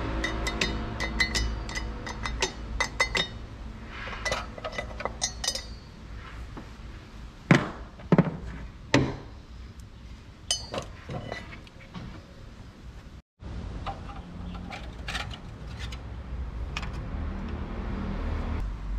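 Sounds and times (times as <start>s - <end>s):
metal tools clinking: 0.2s - 3.4s, 4.2s - 6.0s, 10.5s - 11.6s, 14.1s - 16.0s.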